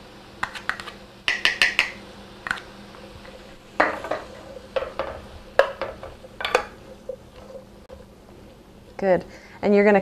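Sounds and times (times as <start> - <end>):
spoon knocking and scraping skillet: 0.4 - 8.0.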